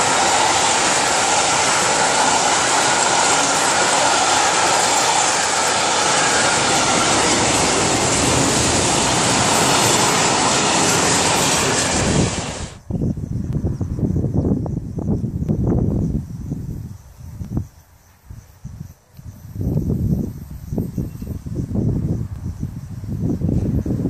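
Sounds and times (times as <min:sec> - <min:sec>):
train wheels running on rails: 0:00.0 - 0:12.8.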